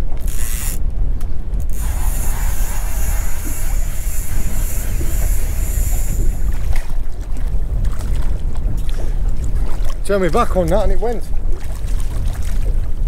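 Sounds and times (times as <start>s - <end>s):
fishing reel whirring: 0.0s - 0.8s, 1.6s - 6.8s
wind buffeting microphone: 0.0s - 13.0s
fishing reel clicks: 0.2s - 0.8s, 1.6s - 6.6s.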